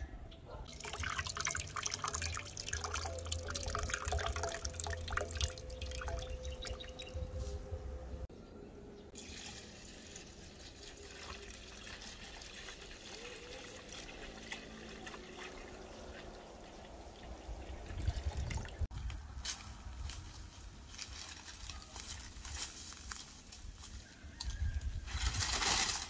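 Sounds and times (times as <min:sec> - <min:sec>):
liquid pouring and splashing: 0:00.7 - 0:07.0, 0:09.2 - 0:18.9.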